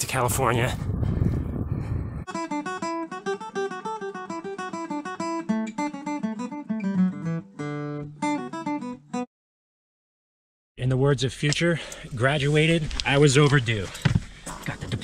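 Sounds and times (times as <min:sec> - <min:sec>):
fingerpicked acoustic guitar: 0:02.3 - 0:09.3.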